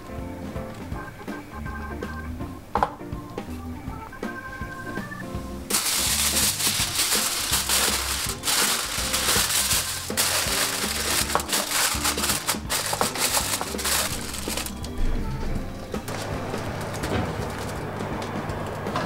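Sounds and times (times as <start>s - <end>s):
background music: 0.0s - 19.0s
aluminium foil crinkling: 5.7s - 15.0s, 16.1s - 17.8s.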